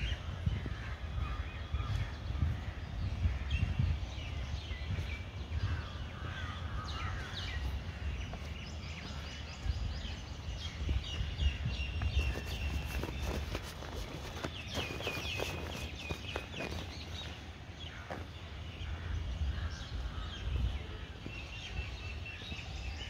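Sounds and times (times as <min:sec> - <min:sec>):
birds chirping and calling: 0:00.0 - 0:23.0
steady low rumble: 0:00.0 - 0:23.0.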